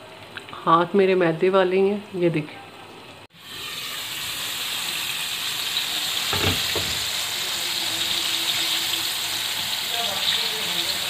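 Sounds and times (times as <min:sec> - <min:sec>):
wings frying in hot oil: 0:03.2 - 0:11.0.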